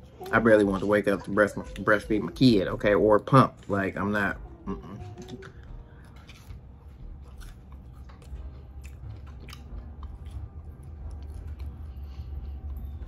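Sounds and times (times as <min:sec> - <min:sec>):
person chewing crunchy food: 0:04.7 - 0:13.0.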